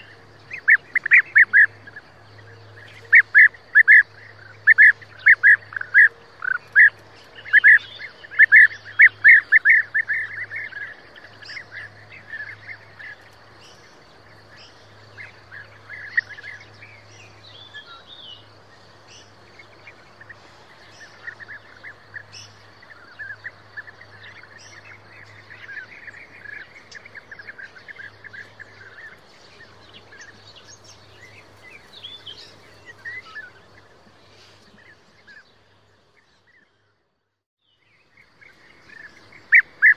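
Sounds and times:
birds calling: 0.0 - 37.1, 37.7 - 39.9.

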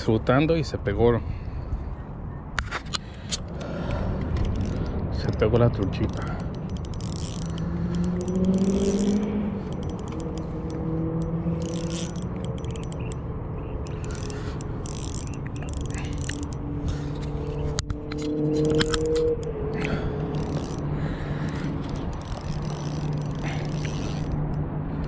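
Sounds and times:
fishing reel cranking clicks: 4.4 - 17.5, 18.2 - 25.0
sharp click: 14.0 - 20.8.

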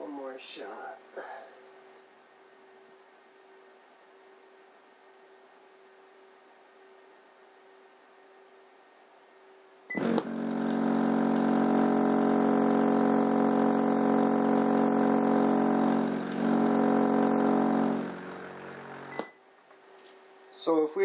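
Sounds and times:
subwoofer buzzing hum: 9.6 - 20.9.

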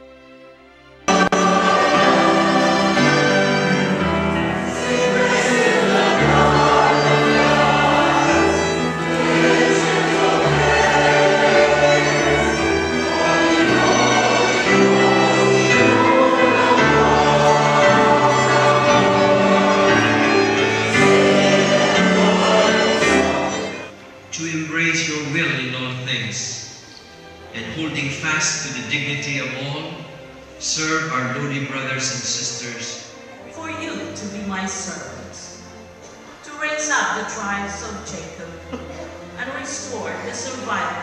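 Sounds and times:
choir singing a hymn: 1.1 - 24.0.

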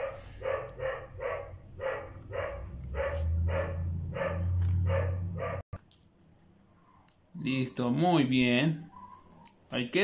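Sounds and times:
dog barking: 0.0 - 5.6.

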